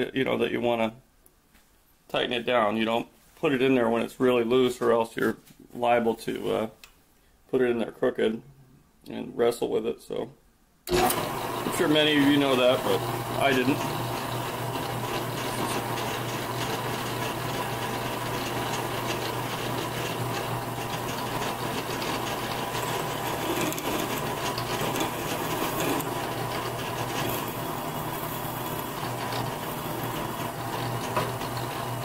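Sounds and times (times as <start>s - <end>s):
drill bit cutting metal: 10.9s - 32.0s
drill press motor hum: 10.9s - 32.0s.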